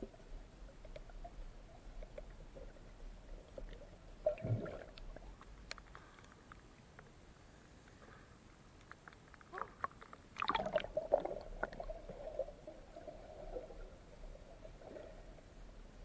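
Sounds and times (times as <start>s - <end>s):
faint clicks: 0.8s - 1.2s, 4.9s - 8.1s, 8.8s - 10.2s
water gurgling underwater: 2.1s - 5.3s, 10.4s - 15.4s.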